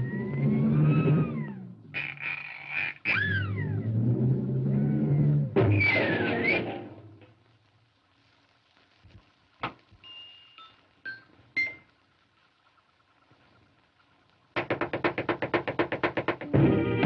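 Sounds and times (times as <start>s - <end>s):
whistle-like pips: 0.0s - 3.9s, 5.0s - 6.8s.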